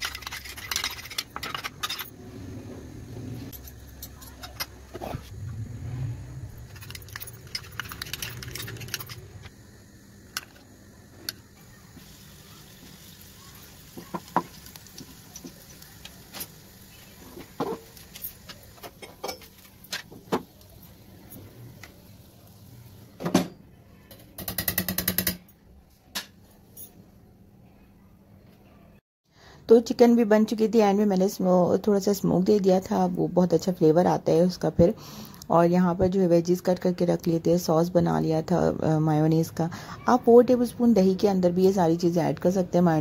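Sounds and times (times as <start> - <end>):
meat sizzling in a pan: 11.6 - 18.8.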